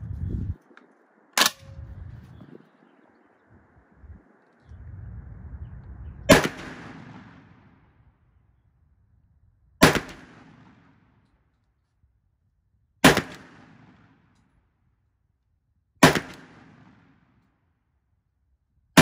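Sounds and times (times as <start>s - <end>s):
shotgun shots echoing: 1.4s - 1.8s, 6.3s - 7.8s, 9.8s - 11.1s, 13.0s - 14.2s, 16.0s - 17.2s.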